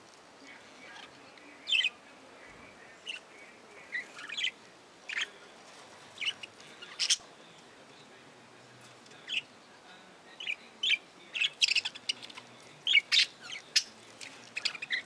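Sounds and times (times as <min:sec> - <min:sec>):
budgerigars chirping: 0:03.9 - 0:05.3, 0:06.2 - 0:07.2, 0:09.2 - 0:09.5, 0:10.4 - 0:15.0.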